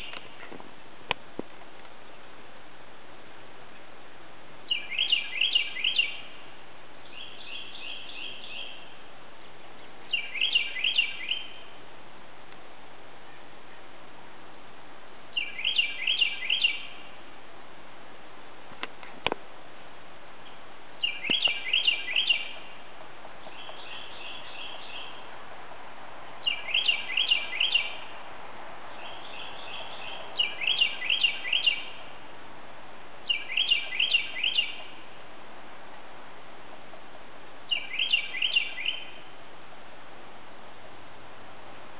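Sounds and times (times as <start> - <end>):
steady background hiss: 0.0 - 41.9
bird singing whistled notes: 4.7 - 6.4, 7.0 - 9.0, 10.1 - 11.8, 15.3 - 17.1, 21.0 - 22.8, 23.4 - 25.3, 26.4 - 28.1, 28.9 - 32.0, 33.2 - 35.0, 37.7 - 39.3
faint click: 18.8 - 19.4.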